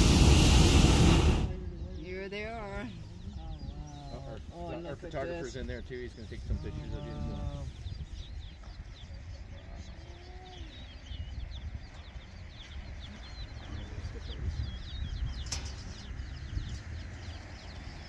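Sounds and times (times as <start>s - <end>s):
low steady rumble: 0.0s - 4.0s
birds chirping: 0.0s - 18.0s.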